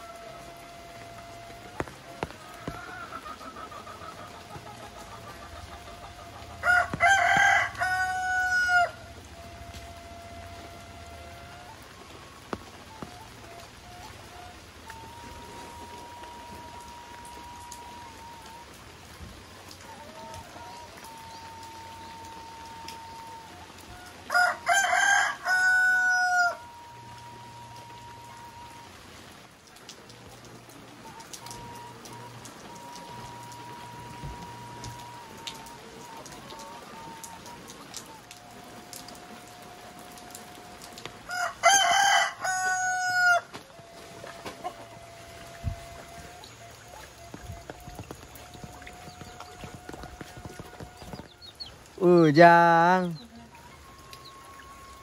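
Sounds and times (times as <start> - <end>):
rooster crowing: 0.0 - 11.8, 19.7 - 28.9, 31.1 - 46.3
steady rain: 0.0 - 55.0.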